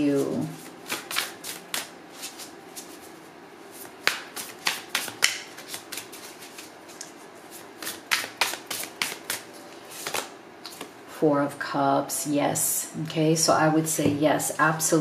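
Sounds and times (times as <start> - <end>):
cards being shuffled: 0.2 - 10.9.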